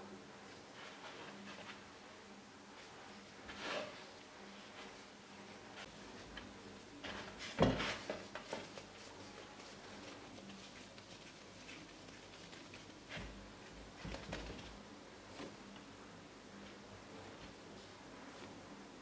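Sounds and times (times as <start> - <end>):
dough rustling and knocking: 5.8 - 15.8.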